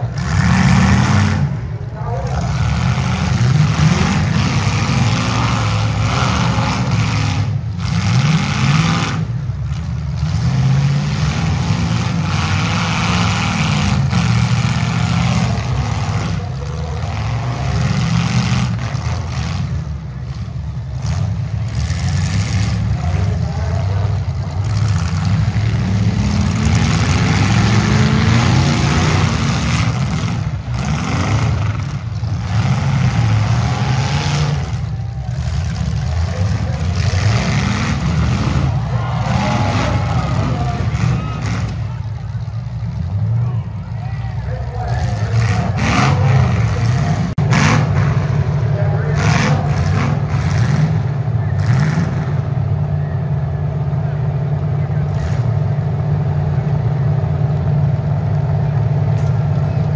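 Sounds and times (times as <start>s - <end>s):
car engines revving: 0.0s - 59.9s.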